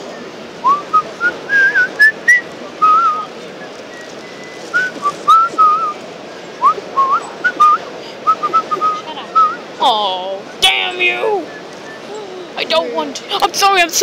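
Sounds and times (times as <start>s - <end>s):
noise of a busy hall: 0.0s - 14.0s
person whistling a tune: 0.6s - 3.3s, 3.9s - 6.0s, 6.6s - 9.6s.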